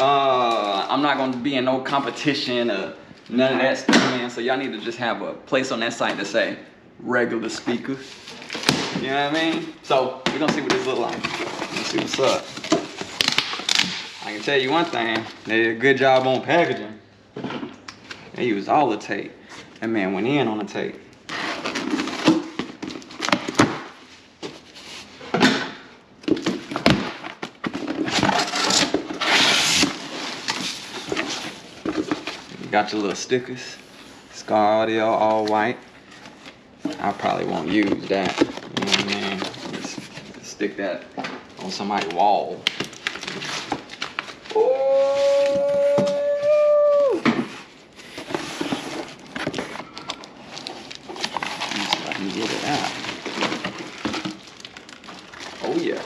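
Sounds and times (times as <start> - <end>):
cardboard and plastic wrap rustling: 7.5 - 16.9, 19.5 - 25.6, 26.2 - 56.0
cardboard scraping: 10.5 - 15.5, 27.7 - 32.6, 47.2 - 54.6
dog howling: 44.5 - 47.2.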